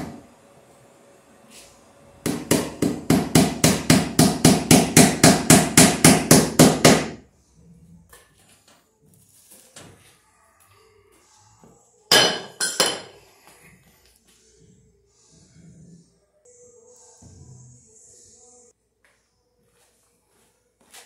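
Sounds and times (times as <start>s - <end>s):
hammer striking wood: 2.2s - 7.2s.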